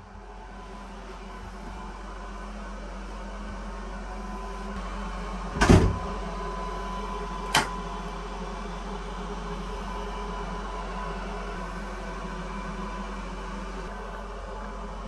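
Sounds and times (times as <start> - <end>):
bus interior hum: 0.0 - 15.0
toilet door thumping shut: 5.6 - 6.1.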